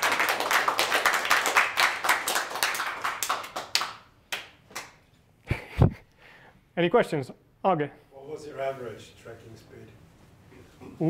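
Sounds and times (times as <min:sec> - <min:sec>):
audience applauding: 0:00.0 - 0:04.9.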